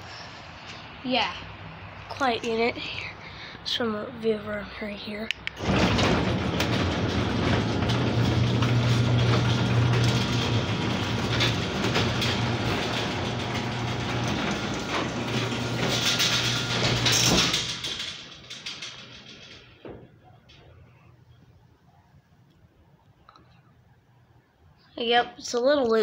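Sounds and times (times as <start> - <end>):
garage door opener motor hum: 5.6 - 20.9.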